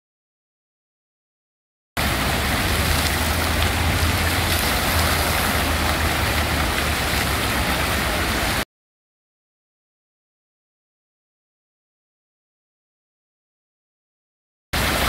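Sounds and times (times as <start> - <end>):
low rumble: 2.0 - 8.3
fountain water splashing: 2.0 - 8.6, 14.8 - 15.0.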